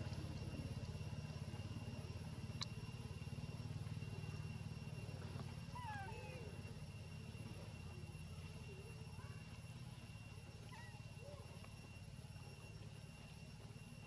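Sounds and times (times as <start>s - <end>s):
steady low hum: 0.0s - 14.0s
infant monkey squeaking: 5.8s - 6.2s.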